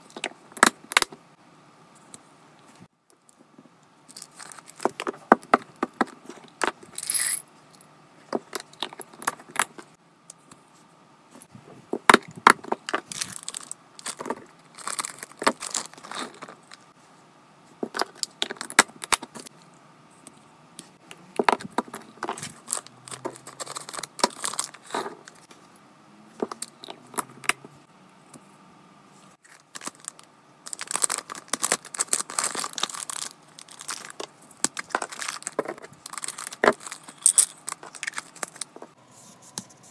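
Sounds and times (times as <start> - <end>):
packaging clicks taps and rustles: 4.1 - 6.8, 12.0 - 16.8, 21.3 - 25.4, 29.4 - 38.9.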